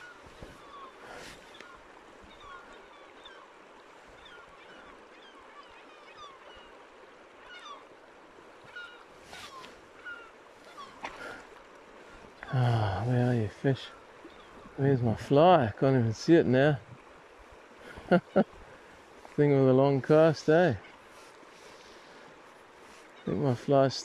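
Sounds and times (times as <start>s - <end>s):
river rushing: 0.0s - 15.5s
birds chirping: 0.0s - 24.0s.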